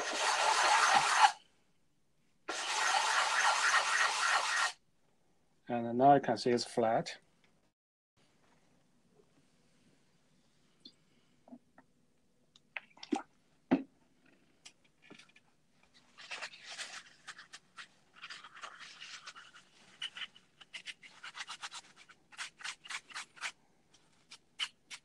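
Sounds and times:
rubbing on plastic cover: 0:15.8 - 0:25.0.

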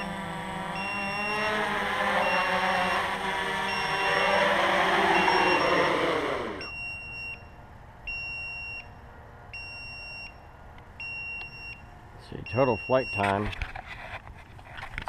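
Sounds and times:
drone motors whirring down: 0:00.0 - 0:06.8
high electronic beep: 0:02.2 - 0:07.4.

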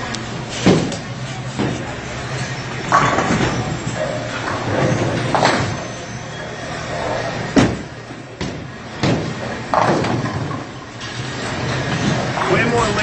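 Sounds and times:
bowling balls knocking and clattering: 0:00.5 - 0:02.1, 0:02.8 - 0:05.9, 0:07.5 - 0:13.0
bowling ball thud: 0:07.5 - 0:10.7.

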